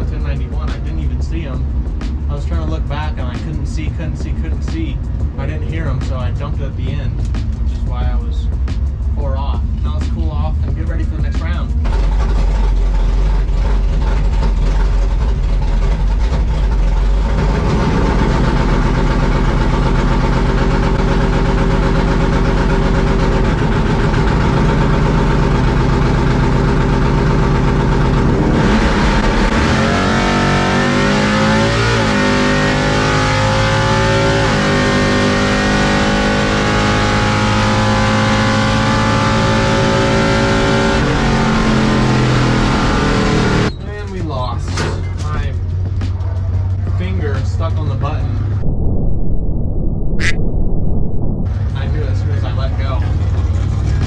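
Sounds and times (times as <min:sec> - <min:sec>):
drag car engine revving: 0:10.8 - 0:43.7.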